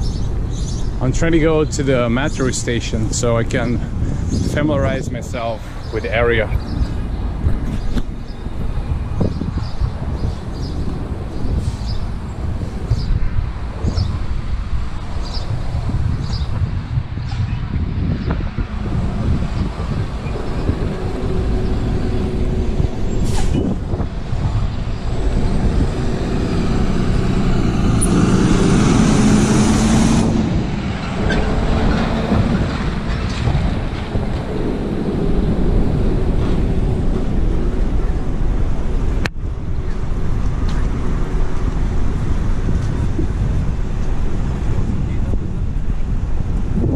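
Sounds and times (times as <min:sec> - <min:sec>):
street traffic: 0:00.0 - 0:46.9
truck passing close by: 0:18.3 - 0:44.9.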